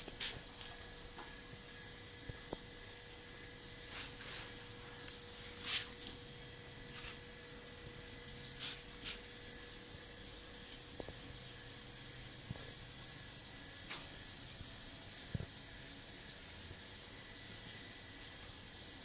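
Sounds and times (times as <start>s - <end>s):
faint steady hum: 0.0s - 19.0s
short hissing rustles: 5.3s - 6.0s.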